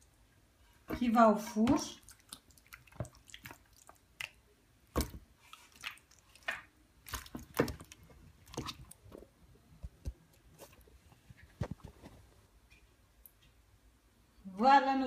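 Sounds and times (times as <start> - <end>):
wet squelches of chicken wings: 1.9 - 9.0.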